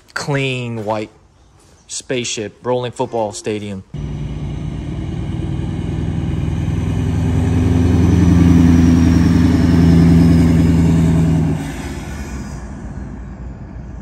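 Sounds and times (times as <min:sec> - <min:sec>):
truck engine droning past: 0:04.0 - 0:14.0.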